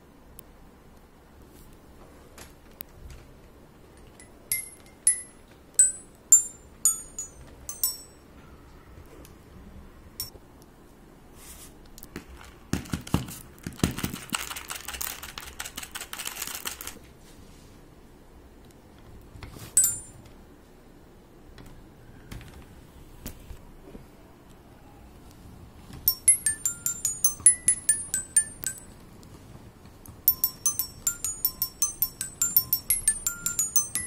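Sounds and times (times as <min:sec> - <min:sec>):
xylophone notes ringing: 0:04.2 - 0:08.2, 0:19.8 - 0:20.2, 0:26.1 - 0:29.0, 0:30.3 - 0:34.0.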